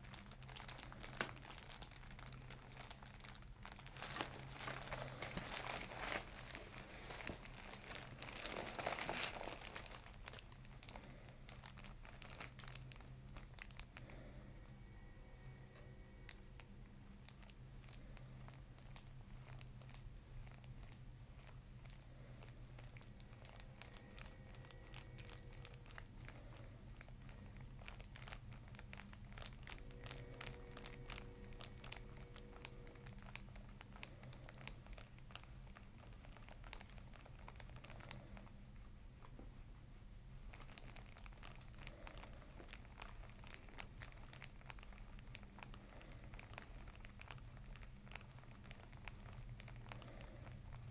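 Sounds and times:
fingertips rustling hair: 0.0 - 14.4
low room hum: 0.0 - 50.9.

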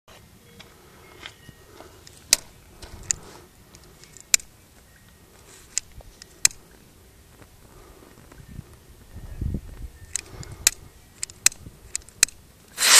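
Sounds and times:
faint background noise: 0.1 - 12.9.

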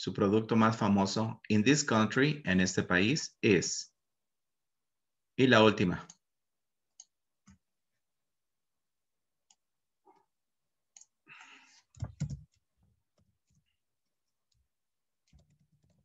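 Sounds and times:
keyboard typing: 11.9 - 13.7, 14.4 - 16.0.

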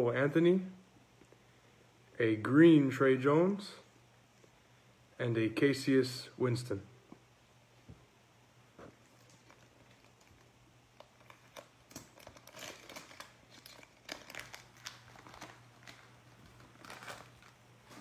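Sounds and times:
low steady hum: 0.0 - 18.0
wrapper crinkling and tearing: 9.0 - 18.0.

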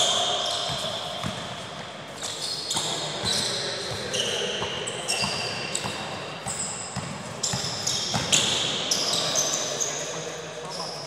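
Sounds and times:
sneakers squeaking on court floor: 0.0 - 11.0
basketball bouncing: 0.7 - 1.5, 5.2 - 8.5.

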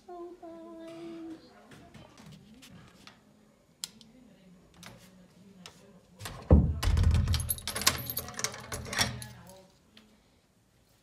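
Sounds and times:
door thud: 6.3 - 8.0
door handle and latch rattling: 6.3 - 9.3
light metallic jingle: 7.3 - 9.6.

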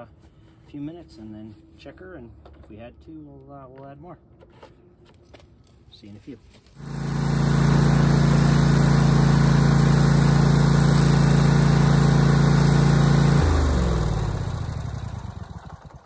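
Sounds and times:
engine spinning down: 6.8 - 16.0
lawn mower engine running: 6.8 - 16.0.

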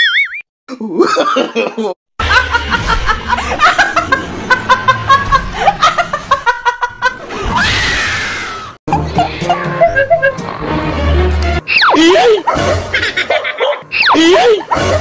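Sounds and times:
woman laughing hard: 1.0 - 7.4, 8.9 - 10.5, 11.9 - 15.0
music: 8.9 - 11.7.

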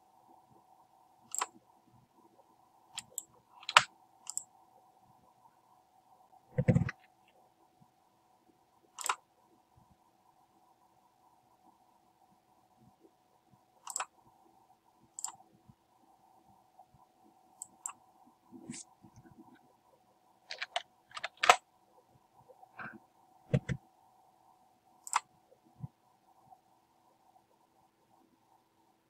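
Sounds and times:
faint steady hum: 0.0 - 29.0
mouse and keyboard clicks: 1.3 - 1.6, 3.0 - 4.5, 6.6 - 7.1, 9.0 - 9.2, 13.8 - 14.1, 15.2 - 15.4, 20.5 - 21.6, 23.5 - 23.8, 25.0 - 25.3.

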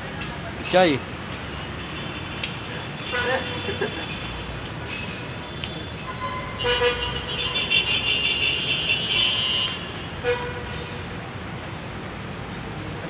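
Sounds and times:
low rumble of traffic: 0.0 - 13.0.

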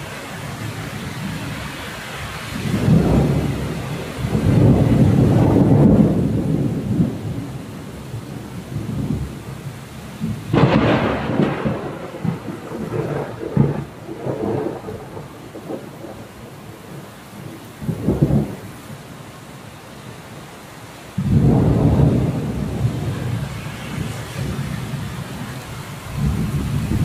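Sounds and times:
thunder rumbling: 0.0 - 19.0, 21.2 - 27.0
steady rain: 0.0 - 27.0
sharp thunder clap: 10.2 - 16.3, 21.2 - 23.2.

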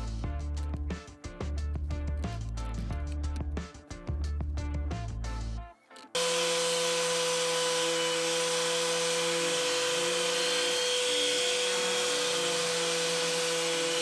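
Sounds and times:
orbit sander on wood: 6.2 - 14.0.

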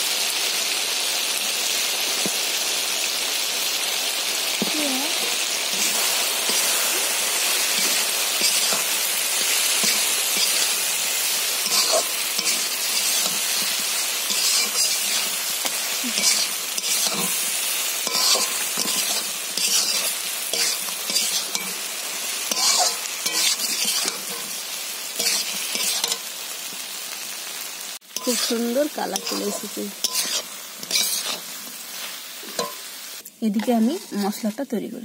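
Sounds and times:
frying in hot oil: 0.0 - 35.0
spatula scraping a pan: 5.7 - 24.6, 25.2 - 26.3, 28.2 - 32.8, 33.6 - 34.5.

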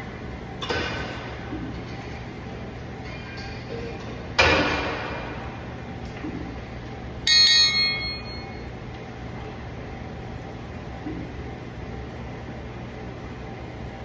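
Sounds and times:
metal gym equipment clanking: 2.9 - 5.6, 7.3 - 8.7
ringing metallic clang: 7.3 - 8.6.

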